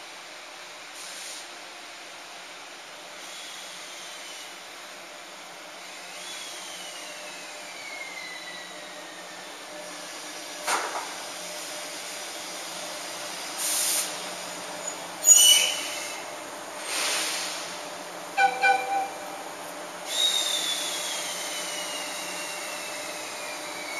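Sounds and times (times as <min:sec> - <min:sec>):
electric locomotive whine: 0:01.8 - 0:23.9
air hiss: 0:13.6 - 0:14.2, 0:16.8 - 0:17.9.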